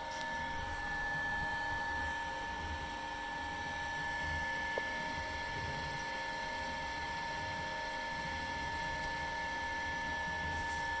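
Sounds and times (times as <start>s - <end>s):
high-pitched whine: 0.0s - 7.5s
mixer mechanical hum: 0.0s - 11.0s.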